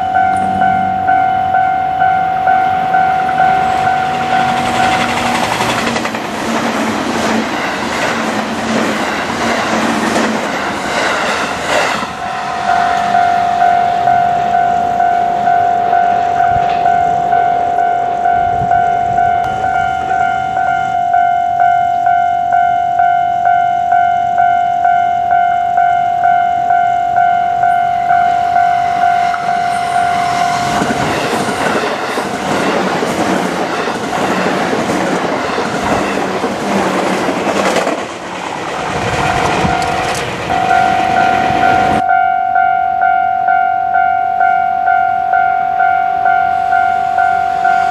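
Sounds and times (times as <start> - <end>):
level crossing warning bell: 0.0 - 6.2, 7.2 - 9.6, 12.1 - 36.2, 39.1 - 47.9
train rumbling and clattering: 0.0 - 21.8, 27.6 - 42.0
electric train passing: 0.0 - 47.9.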